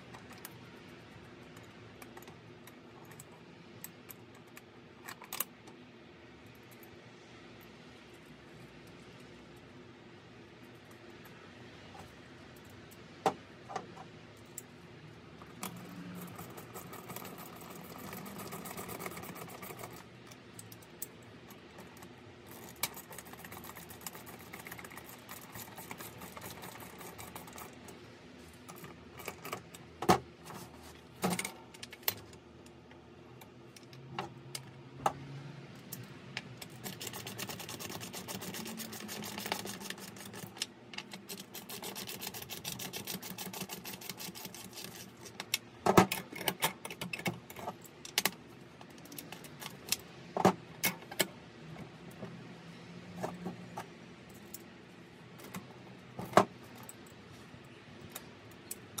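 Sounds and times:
fast ratchet clicking: 0:36.6 - 0:40.6.

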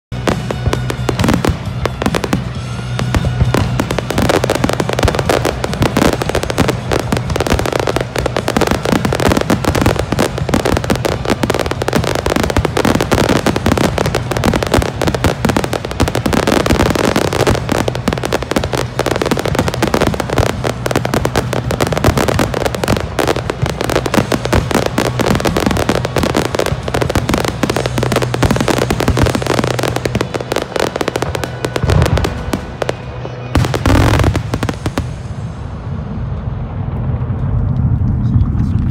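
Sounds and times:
fireworks bangs and crackles: 0:00.1 - 0:38.9.

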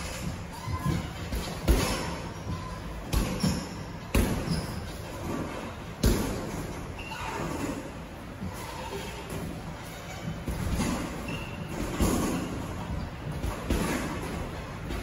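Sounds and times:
boxing gloves thudding: 0:13.4 - 0:15.0.

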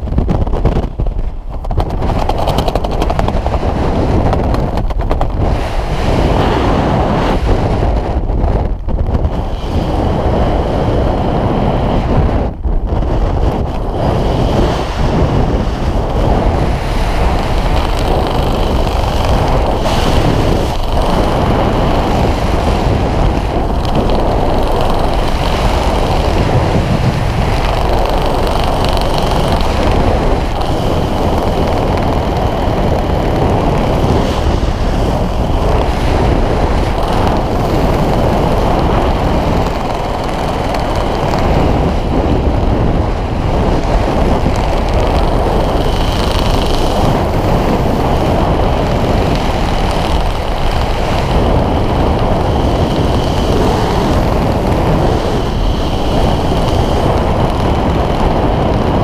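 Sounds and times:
wind rushing over microphone: 0:00.0 - 0:59.0.

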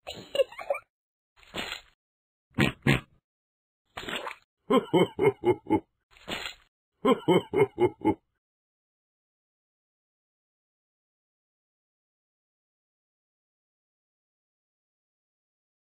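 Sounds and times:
cartoon pig sound effects: 0:02.6 - 0:03.1.

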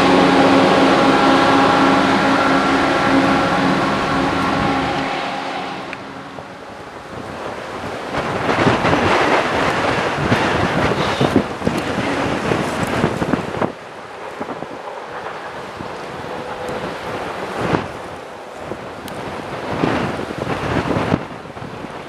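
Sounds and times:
diesel train engine drone: 0:00.0 - 0:22.0
wind buffeting microphone: 0:00.0 - 0:22.0.

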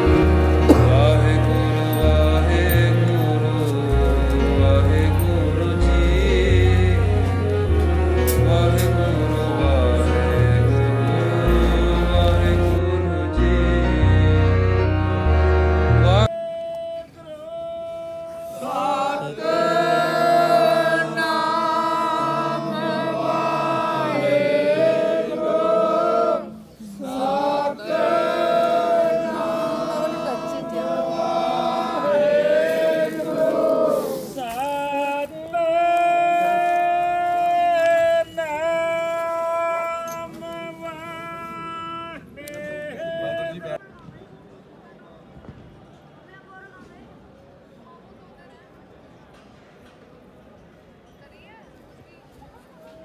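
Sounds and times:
steady musical accompaniment: 0:00.0 - 0:16.3
voices singing a hymn: 0:00.0 - 0:43.8.

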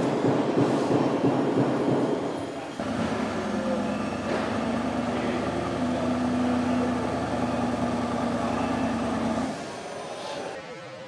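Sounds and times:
steady machinery hum: 0:02.8 - 0:10.0.

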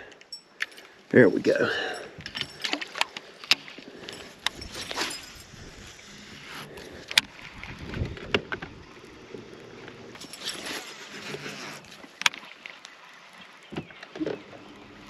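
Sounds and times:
fishing tackle clicks and knocks: 0:00.1 - 0:05.5.

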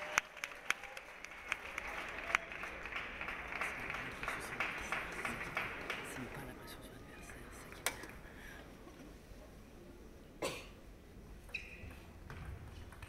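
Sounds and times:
person coughing: 0:10.4 - 0:10.8
brief high squeak: 0:11.5 - 0:12.0.

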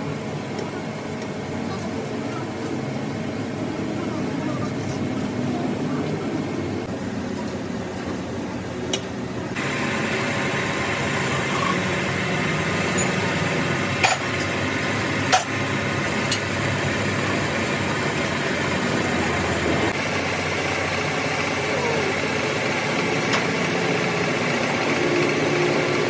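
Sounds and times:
metal lathe running: 0:09.5 - 0:26.0.

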